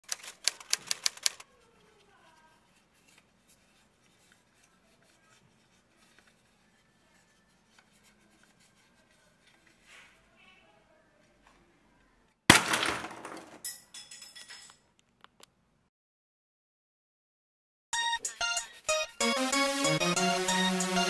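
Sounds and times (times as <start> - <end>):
sharp clicks: 0.0 - 1.4.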